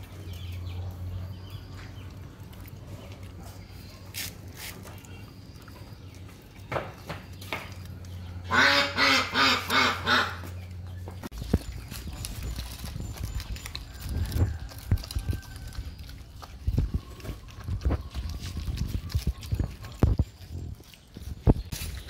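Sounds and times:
animal calling: 0:08.2 - 0:10.8.

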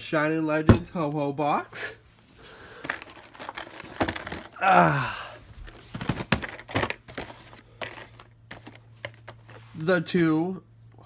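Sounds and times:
cardboard boxes knocking and crinkling: 0:02.8 - 0:04.6, 0:05.5 - 0:09.5.

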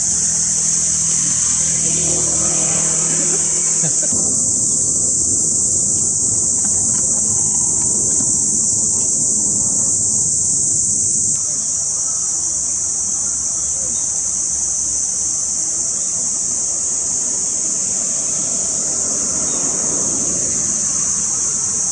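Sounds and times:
low background rumble: 0:00.0 - 0:11.4
cicadas droning: 0:00.0 - 0:21.9.

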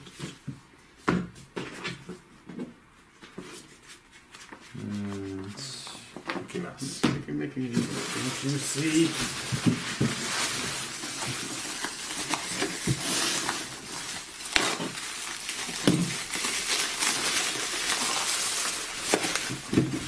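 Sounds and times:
bubble wrap crinkling: 0:07.6 - 0:20.0.

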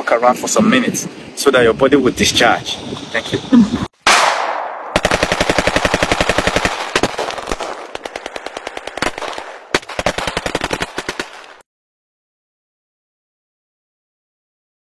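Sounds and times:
rapid sharp cracks: 0:04.1 - 0:11.6.

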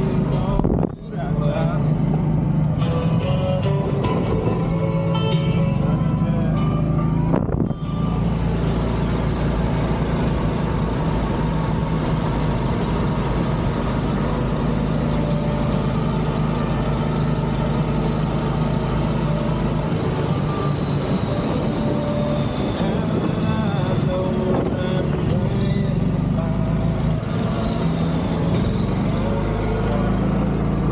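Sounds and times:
golf cart motor and tyres: 0:00.0 - 0:30.9.

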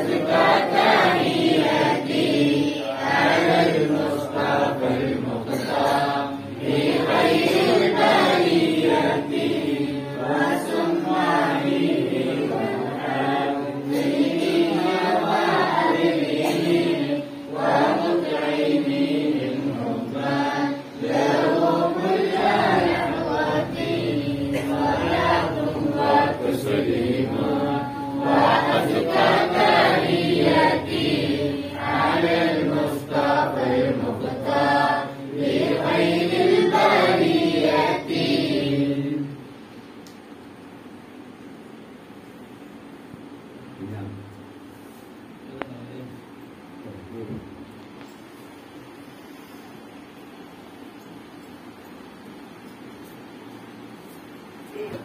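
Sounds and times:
group chanting: 0:00.0 - 0:39.4.

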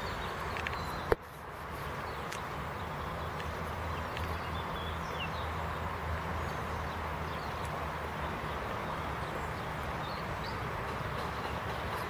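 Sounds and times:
bird chirps: 0:00.0 - 0:01.2.

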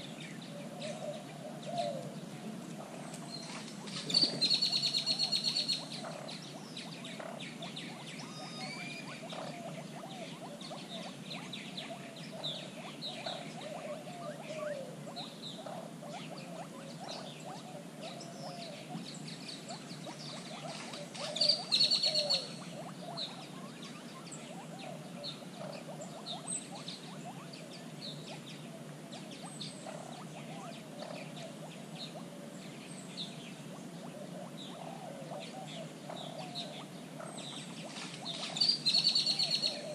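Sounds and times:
birds chirping: 0:00.0 - 0:39.9
low wavering bird calls: 0:00.0 - 0:39.9
loud rapid bird trill: 0:21.3 - 0:22.6, 0:38.4 - 0:39.9.

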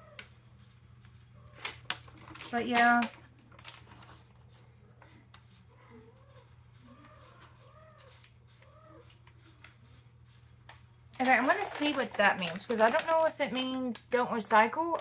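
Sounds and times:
paper package rustling: 0:00.6 - 0:05.7, 0:06.5 - 0:15.0
faint animal cries: 0:05.7 - 0:09.2.

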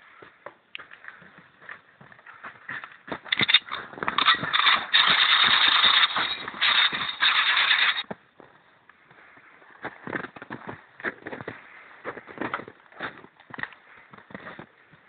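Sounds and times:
footsteps running through snow: 0:02.2 - 0:08.1.

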